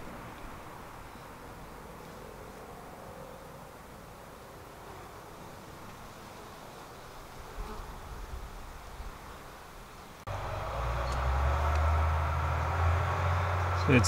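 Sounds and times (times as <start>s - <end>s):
faint background noise: 0.0s - 14.0s
low droning hum: 10.3s - 14.0s.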